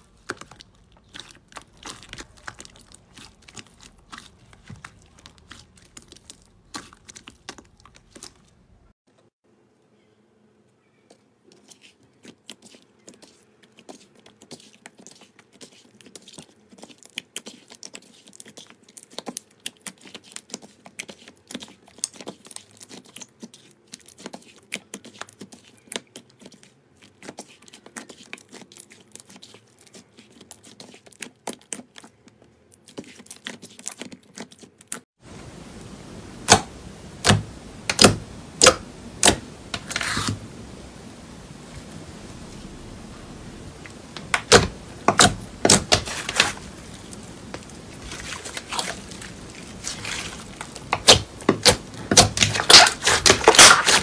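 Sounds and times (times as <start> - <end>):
slime popping: 0.0 - 8.5, 43.8 - 54.0
slime squishing with wet clicks: 0.0 - 8.8, 11.1 - 35.0
steady hiss: 35.2 - 49.8.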